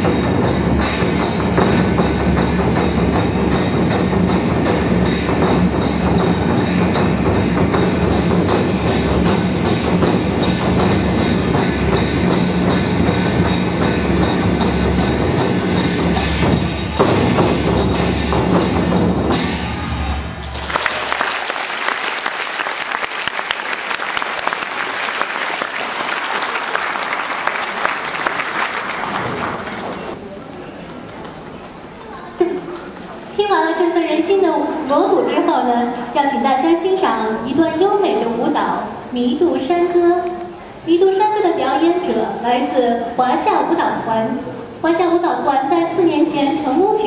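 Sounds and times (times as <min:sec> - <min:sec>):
drums beating rapid rhythm: 0:00.0 - 0:20.8
audience applause: 0:20.4 - 0:30.2.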